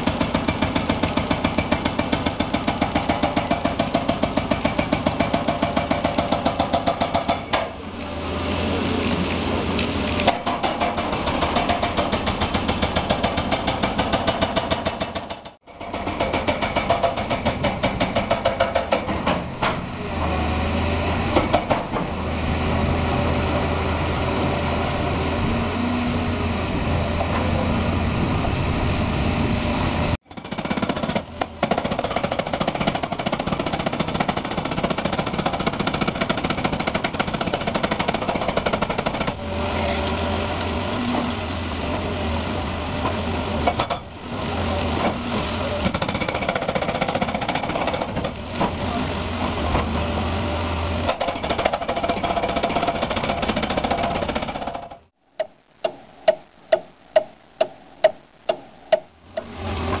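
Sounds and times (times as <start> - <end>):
jackhammer hammering: 0.0 - 7.8, 10.3 - 19.8, 30.2 - 39.5, 45.8 - 48.4, 51.0 - 60.0.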